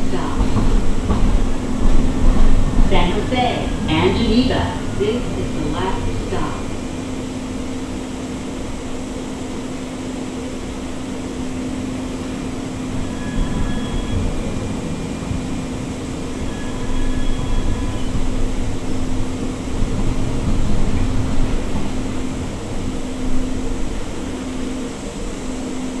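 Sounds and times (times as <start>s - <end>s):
wheel-on-rail rumble: 0.0s - 8.0s
low hum inside tram: 0.0s - 26.0s.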